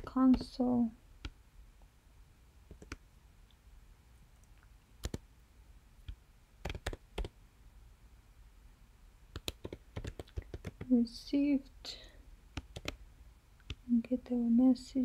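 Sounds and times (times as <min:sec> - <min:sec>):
computer keyboard keystrokes: 0:00.0 - 0:00.6, 0:02.7 - 0:03.0, 0:05.0 - 0:05.2, 0:06.6 - 0:07.3, 0:09.4 - 0:10.9, 0:12.6 - 0:13.0.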